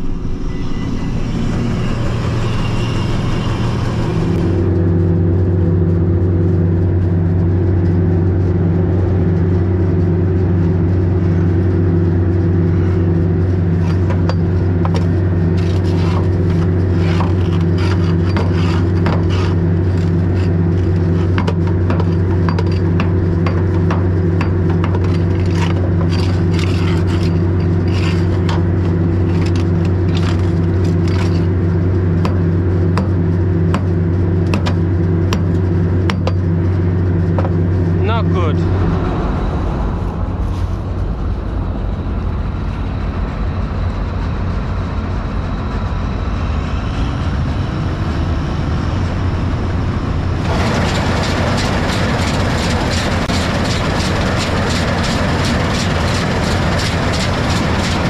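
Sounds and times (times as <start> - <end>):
diesel engine running: 0.0 - 58.0
metal clanks and scrapes: 13.7 - 32.4, 50.5 - 58.0.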